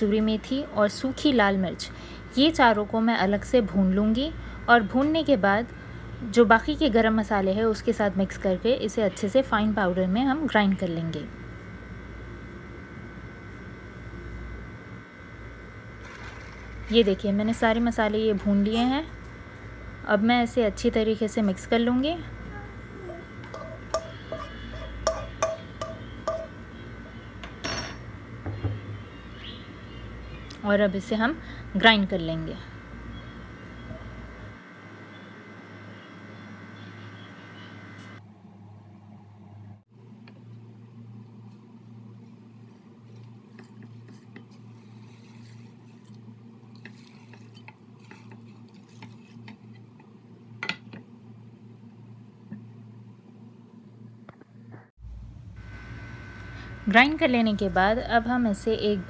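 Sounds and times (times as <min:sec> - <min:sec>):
steady low hum: 0:00.0 - 0:59.0
plate scraping jar rim: 0:23.5 - 0:26.5
pan tapped with ringing clinks: 0:23.5 - 0:26.6.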